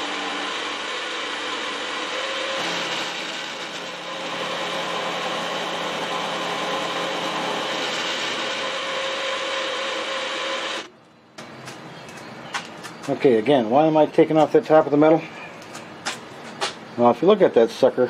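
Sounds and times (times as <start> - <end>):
milling machine cutting metal: 0.0 - 10.9.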